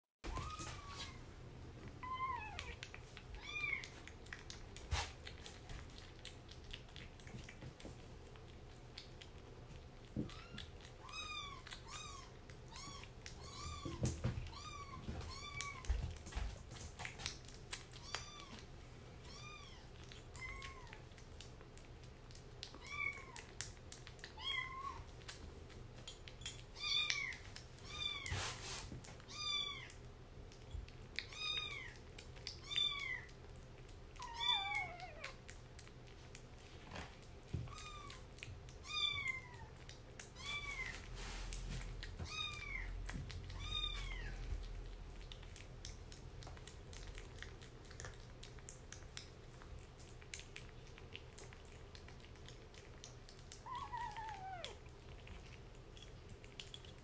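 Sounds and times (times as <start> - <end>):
kitten eating wet food clicks: 1.8 - 28.2, 29.0 - 40.9, 41.5 - 57.0
kitten mewing: 53.5 - 55.3.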